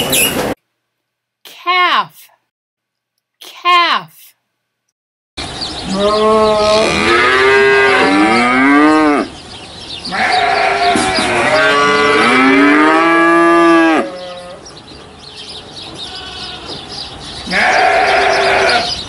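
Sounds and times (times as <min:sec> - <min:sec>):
calf mooing: 0:05.9 - 0:09.3, 0:10.1 - 0:14.6, 0:17.5 - 0:18.9.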